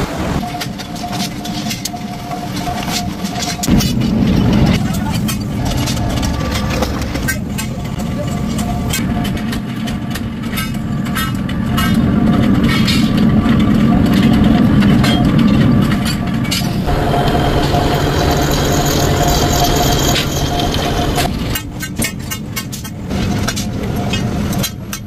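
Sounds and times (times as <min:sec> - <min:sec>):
low machinery hum: 0:00.0 - 0:25.0
metal clanks and knocks: 0:00.4 - 0:25.0
drill boring through steel: 0:16.6 - 0:21.3.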